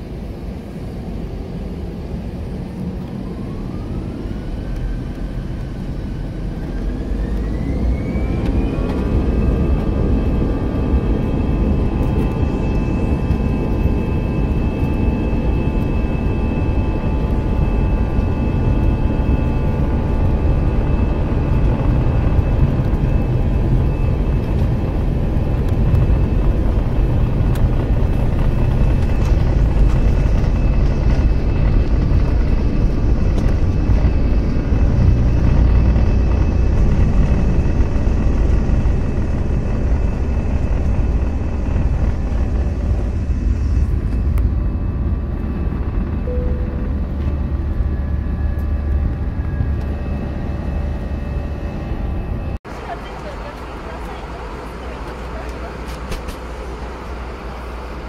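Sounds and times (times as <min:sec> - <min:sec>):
jet engines whining: 0:00.0 - 0:58.0.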